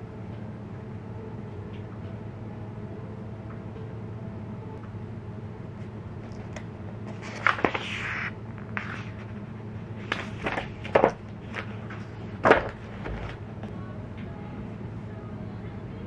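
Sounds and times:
low steady hum: 0.0s - 16.0s
paper pages rustling and flipping: 6.3s - 13.4s.

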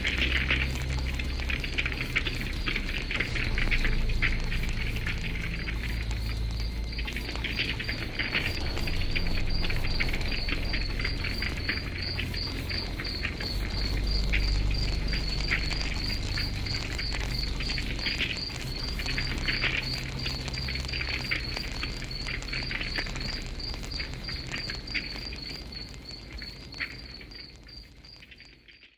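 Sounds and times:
low steady rumble: 0.0s - 26.3s
campfire crackling and popping: 0.0s - 28.6s
cricket chirping: 0.0s - 28.9s.

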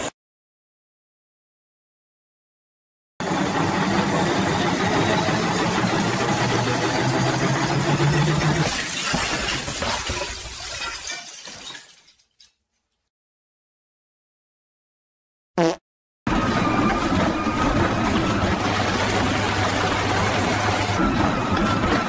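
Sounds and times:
washing machine motor humming: 3.2s - 8.6s, 16.3s - 22.0s
machine crashing apart: 8.5s - 12.5s.

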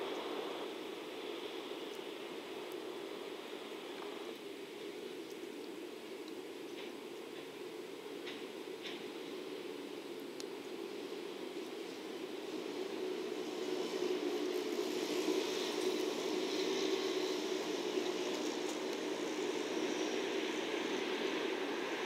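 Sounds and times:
train wagons rumbling on track: 6.6s - 9.9s.

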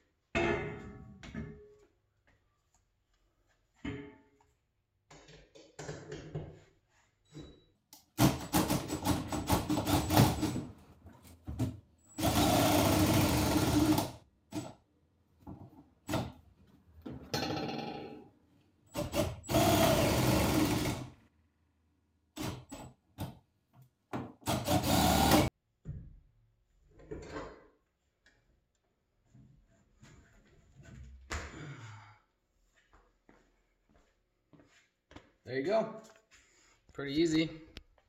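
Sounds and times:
cordless drill turning winch: 12.1s - 14.2s, 19.0s - 21.0s, 24.5s - 25.5s.

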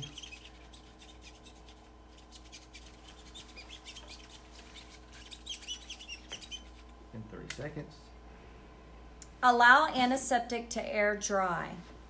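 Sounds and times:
small squeaks: 0.0s - 7.0s.

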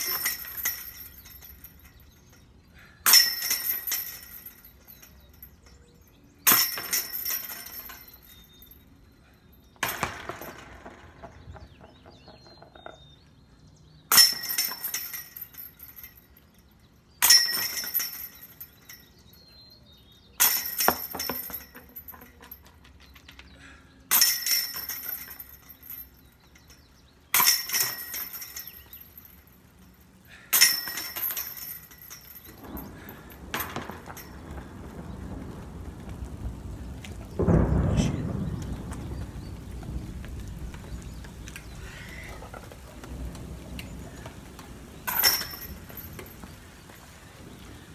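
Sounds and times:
discs hitting metal basket chains: 0.0s - 2.4s, 3.0s - 5.7s, 6.4s - 8.8s, 9.8s - 11.6s, 14.1s - 16.4s, 17.2s - 19.2s, 20.4s - 23.4s, 24.1s - 34.5s, 45.0s - 46.5s.

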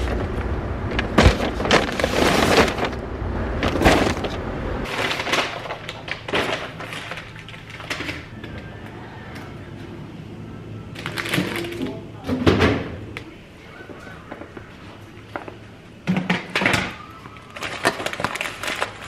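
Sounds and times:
paper bags rustling and crinkling: 0.0s - 8.8s, 10.9s - 11.9s, 16.6s - 19.0s.

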